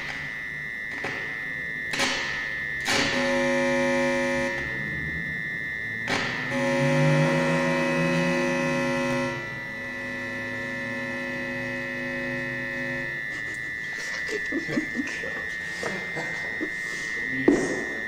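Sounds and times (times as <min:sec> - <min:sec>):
low steady electronic tones: 0:00.0 - 0:18.0
steady high electronic whine: 0:00.0 - 0:18.0.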